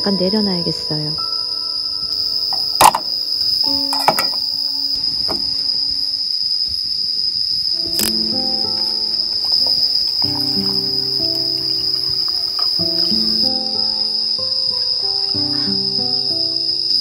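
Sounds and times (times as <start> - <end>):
crickets trilling: 0.0 - 17.0
sharp clicks and knocks: 2.6 - 3.1, 3.9 - 4.4.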